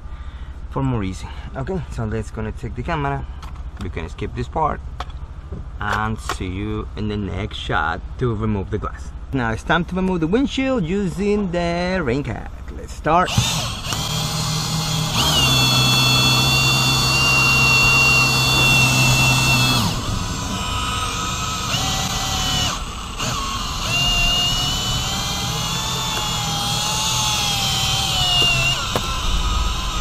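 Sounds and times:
cordless drill whining: 13.3s - 30.0s.

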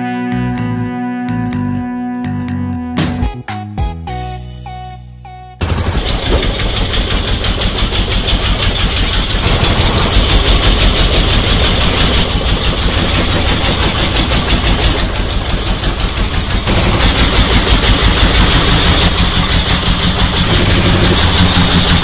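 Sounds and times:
boat engine running: 5.6s - 22.0s.

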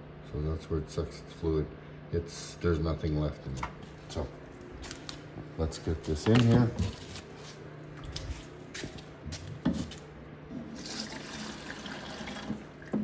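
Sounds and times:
fuel trickling into tank: 10.8s - 13.0s.

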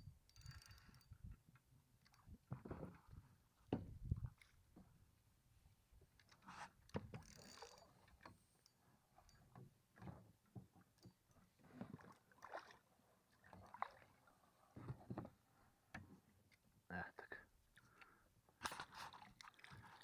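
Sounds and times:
small water splashes: 11.8s - 14.8s, 18.7s - 20.0s.

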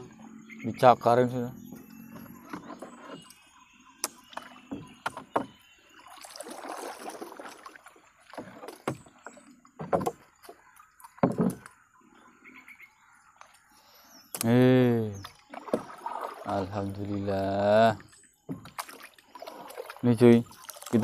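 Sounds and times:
knocks against boat hull: 4.0s - 5.6s, 9.8s - 10.2s, 11.2s - 11.7s
wet net rustling and splashing: 5.9s - 11.2s, 15.4s - 16.8s, 18.1s - 21.0s.

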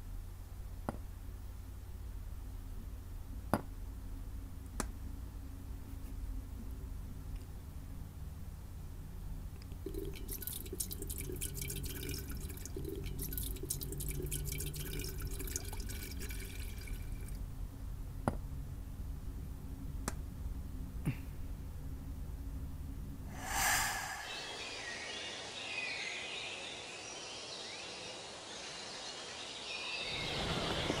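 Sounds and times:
tea pouring into steel canister: 9.8s - 17.3s.

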